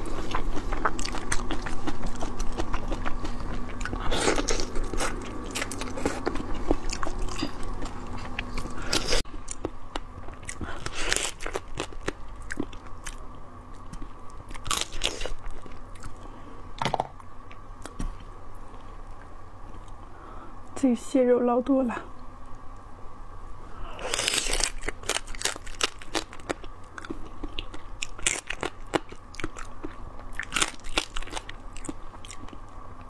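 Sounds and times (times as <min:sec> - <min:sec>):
biting and crunching seafood: 0:00.0 - 0:13.2, 0:14.5 - 0:16.2, 0:24.0 - 0:32.7.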